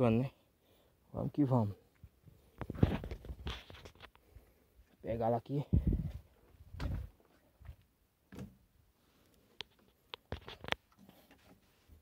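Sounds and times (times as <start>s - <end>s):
soft thuds: 5.8s - 8.6s
dry wood knocking and clicking: 8.3s - 8.6s.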